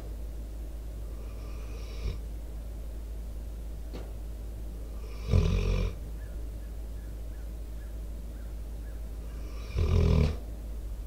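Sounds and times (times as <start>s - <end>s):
dog snoring: 1.2s - 2.2s, 4.9s - 6.0s, 9.4s - 10.4s.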